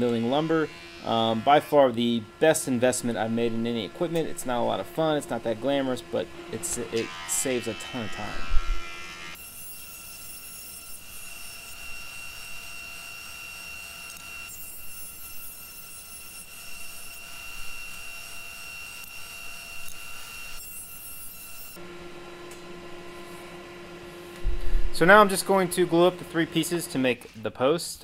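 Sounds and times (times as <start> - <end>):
planer machine whining: 0.0 - 9.4, 21.8 - 27.3.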